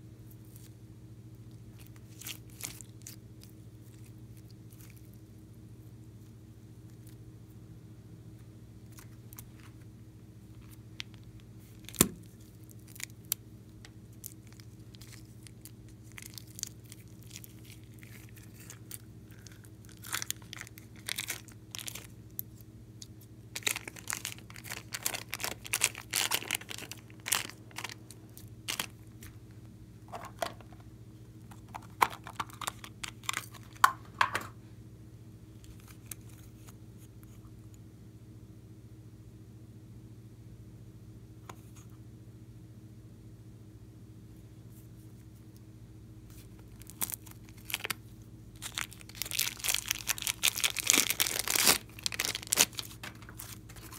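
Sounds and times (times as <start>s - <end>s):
faint steady hum: 0.0s - 53.9s
slime crackling and popping: 1.8s - 5.1s, 14.1s - 29.3s, 46.6s - 48.0s, 48.6s - 53.9s.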